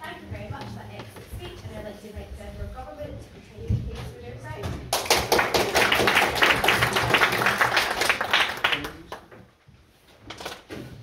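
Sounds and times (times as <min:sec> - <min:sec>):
audience applauding: 0:04.9 - 0:09.4.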